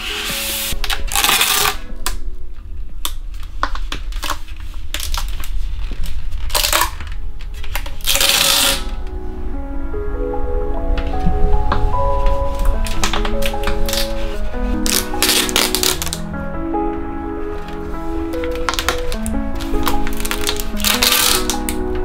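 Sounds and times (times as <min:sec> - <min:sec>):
tape peeling off roll: 0:00.0 - 0:02.2, 0:03.0 - 0:09.0, 0:12.5 - 0:16.2, 0:17.6 - 0:21.8
background music: 0:00.0 - 0:22.0.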